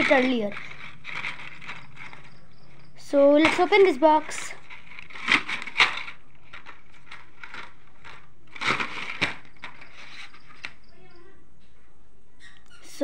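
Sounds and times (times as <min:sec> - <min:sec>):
cardboard box rustling and scraping: 0:00.0 - 0:02.5, 0:03.4 - 0:10.7.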